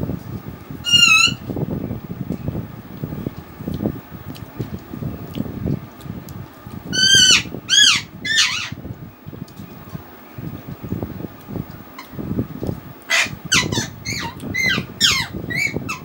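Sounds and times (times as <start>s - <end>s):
chewing and mouth sounds: 3.6s - 6.9s.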